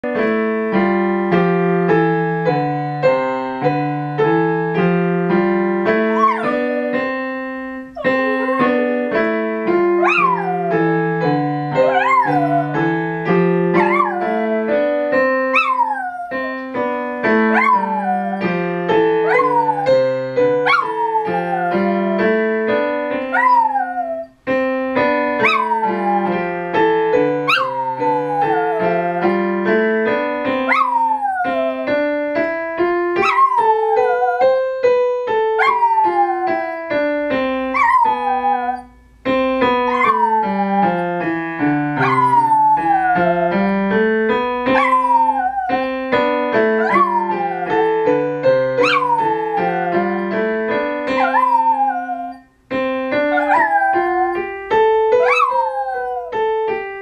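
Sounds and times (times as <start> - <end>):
digital piano playing: 0.0 - 57.0
dog howling: 6.1 - 7.0, 8.0 - 9.0, 10.0 - 11.0, 11.8 - 13.0, 13.8 - 14.7, 15.5 - 16.6, 17.5 - 18.6, 19.2 - 22.4, 23.3 - 24.3, 25.4 - 26.5, 27.4 - 29.3, 30.7 - 31.9, 33.2 - 34.6, 35.6 - 36.8, 37.8 - 38.9, 39.9 - 41.1, 42.0 - 43.6, 44.7 - 45.8, 46.8 - 50.3, 51.1 - 52.4, 53.3 - 54.5, 55.1 - 56.4.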